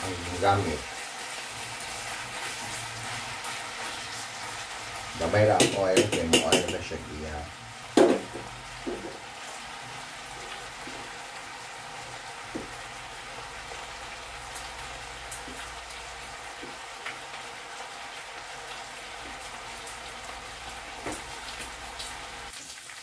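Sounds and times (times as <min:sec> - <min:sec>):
bacon sizzling in a pan: 0:00.0 - 0:23.0.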